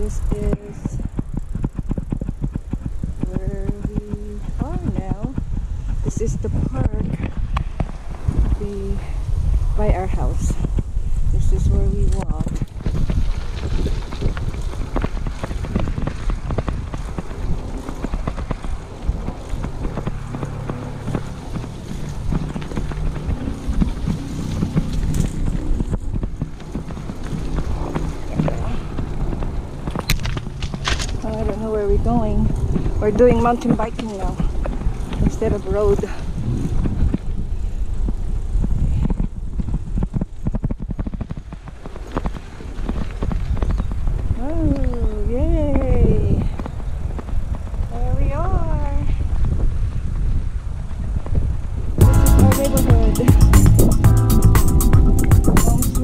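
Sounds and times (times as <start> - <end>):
bicycle rattling clicks: 0.0 - 3.8, 12.1 - 31.6
bicycle rolling on concrete: 0.0 - 56.0
wind buffeting microphone: 0.0 - 56.0.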